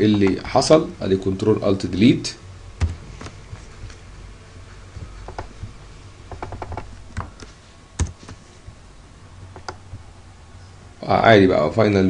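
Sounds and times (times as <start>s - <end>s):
low steady hum: 0.0s - 12.0s
computer clicks: 9.5s - 9.8s.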